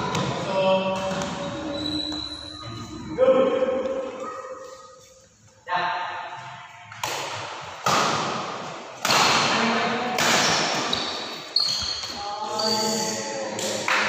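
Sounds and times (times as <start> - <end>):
racket hitting shuttlecock: 6.9 - 11.4.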